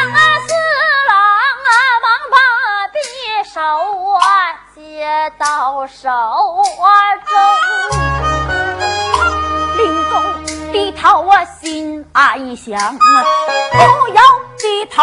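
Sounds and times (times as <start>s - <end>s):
person singing unaccompanied: 0.0s - 8.0s, 9.8s - 15.0s.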